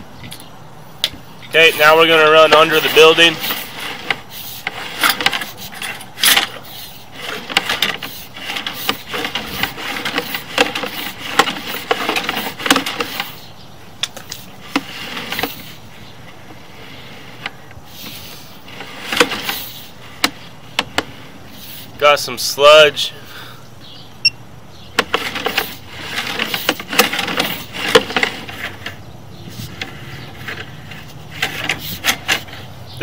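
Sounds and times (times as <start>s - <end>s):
cable scraping in drain pipe: 1.5s - 13.5s, 14.1s - 22.0s, 25.0s - 32.7s
sharp clicks and knocks: 7.3s - 13.4s.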